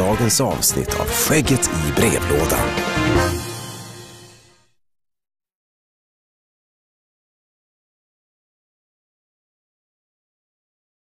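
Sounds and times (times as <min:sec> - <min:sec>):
music: 0:00.0 - 0:04.8.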